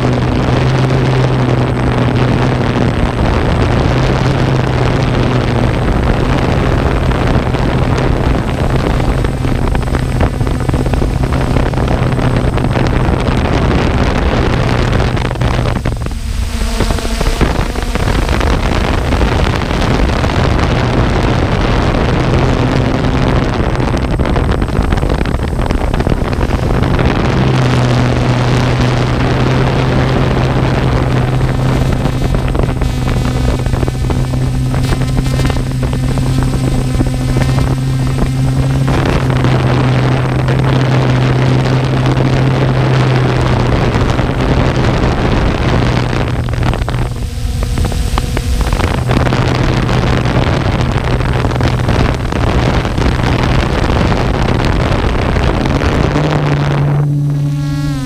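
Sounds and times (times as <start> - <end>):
drone motors humming: 0.0 - 58.0
wind noise on microphone: 0.0 - 58.0.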